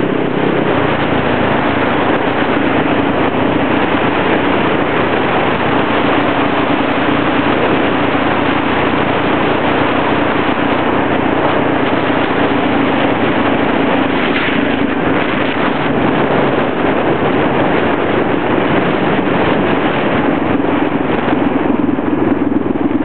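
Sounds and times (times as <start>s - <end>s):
low hum: 0.0s - 23.0s
road and wind noise: 0.0s - 23.0s.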